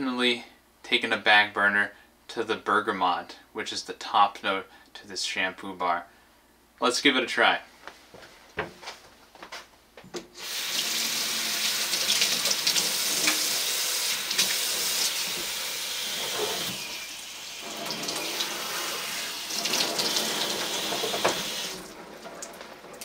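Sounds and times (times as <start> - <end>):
water running into metal sink: 10.4 - 23.0.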